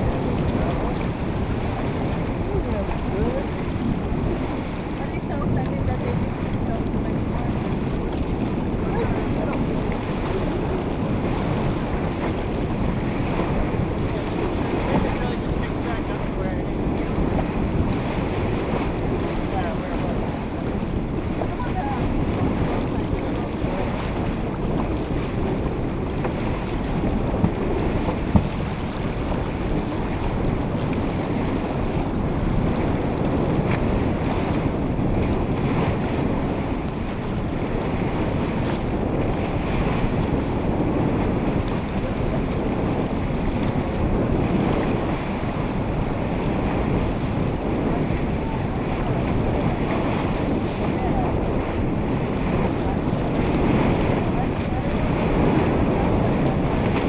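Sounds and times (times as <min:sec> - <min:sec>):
water splashing along hull: 0:00.0 - 0:57.0
wind buffeting microphone: 0:00.0 - 0:57.0
brief knocks: 0:28.3 - 0:28.6.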